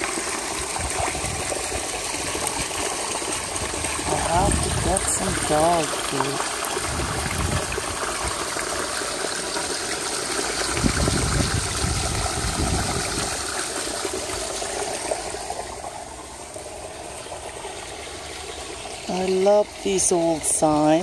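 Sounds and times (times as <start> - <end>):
fountain water splashing: 0.0 - 21.0
low rumble on microphone: 6.8 - 8.3, 10.7 - 13.4.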